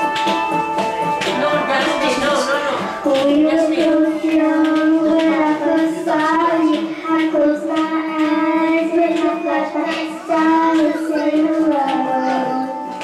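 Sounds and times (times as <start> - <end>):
girl singing into a microphone: 2.9 - 13.0.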